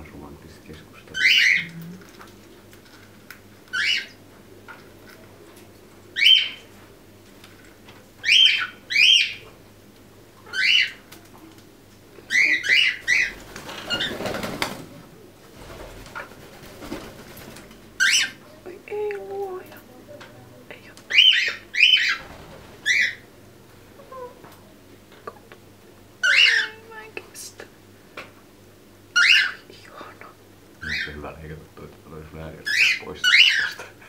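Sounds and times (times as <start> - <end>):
parrots chirping: 1.1 - 1.9, 3.7 - 4.2, 6.2 - 6.7, 8.2 - 9.5, 10.4 - 11.1, 12.3 - 14.4, 18.0 - 18.5, 21.1 - 23.3, 26.2 - 26.8, 29.1 - 29.7, 30.8 - 31.2, 32.6 - 33.9.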